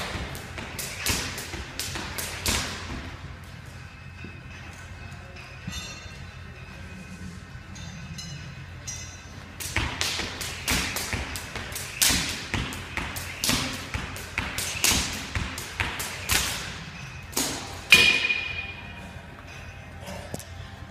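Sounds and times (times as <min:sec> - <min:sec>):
jump rope slapping: 0:00.0 - 0:03.1, 0:09.6 - 0:18.5.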